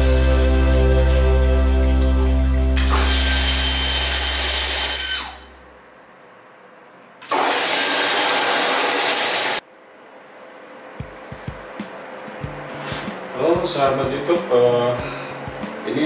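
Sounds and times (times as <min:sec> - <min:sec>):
water rushing from tap: 0:00.0 - 0:05.3, 0:07.3 - 0:09.6
water pump motor humming: 0:00.0 - 0:05.8, 0:07.3 - 0:09.6.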